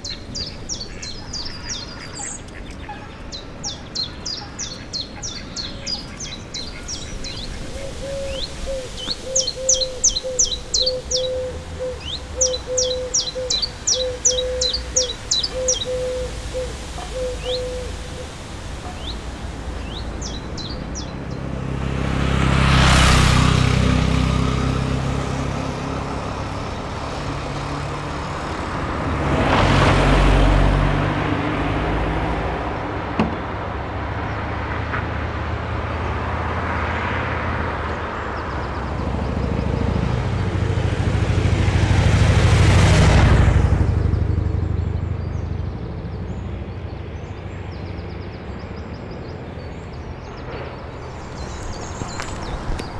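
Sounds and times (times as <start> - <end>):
bird chirps: 0.0 - 19.2
cars passing: 0.0 - 52.9
low traffic rumble: 0.0 - 52.9.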